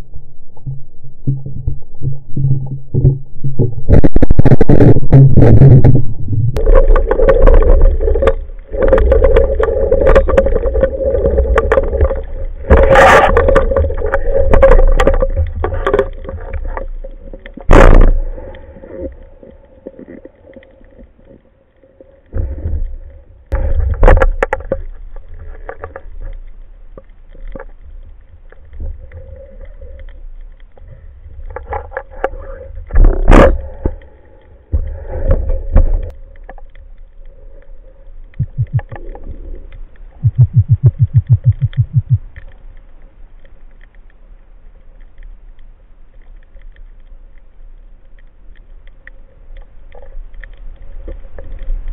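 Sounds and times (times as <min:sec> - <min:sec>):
muffled water sloshing: 0:32.9 - 0:43.3
quick low clicks: 0:40.2 - 0:42.4.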